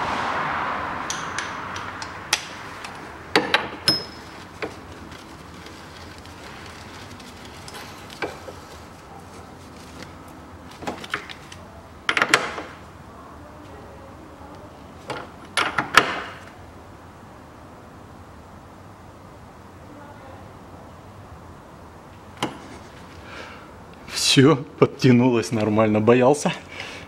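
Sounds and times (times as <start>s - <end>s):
broad rushing noise: 0.0s - 11.7s.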